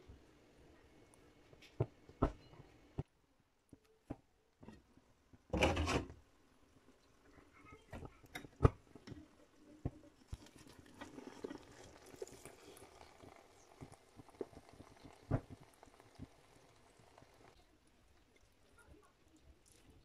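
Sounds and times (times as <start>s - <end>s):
food crackling in a pan: 6.7s - 20.0s.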